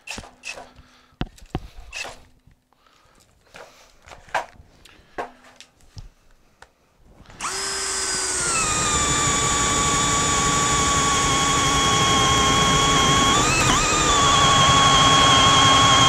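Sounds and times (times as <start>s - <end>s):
cordless drill boring through wood: 7.3s - 16.0s.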